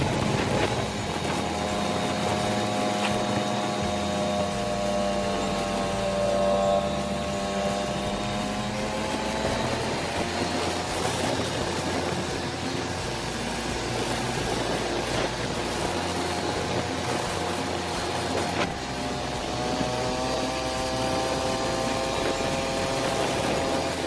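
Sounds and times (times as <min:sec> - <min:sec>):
motorcycle engine running: 0:00.0 - 0:24.0
road noise: 0:00.0 - 0:24.0
wind rush: 0:00.0 - 0:24.0.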